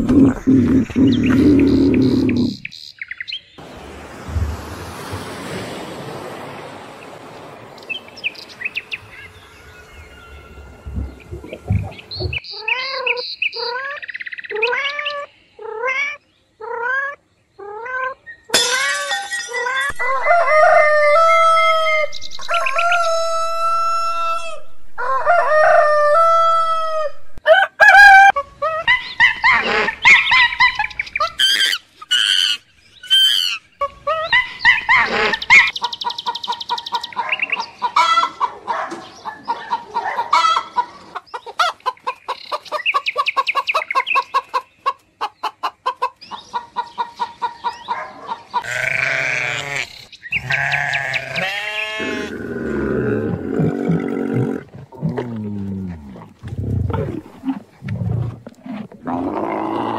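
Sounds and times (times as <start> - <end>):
chickens clucking: 10.8 - 12.6, 33.4 - 48.7
rooster crowing: 19.9 - 28.4
lower-pitched animal call: 48.6 - 59.9.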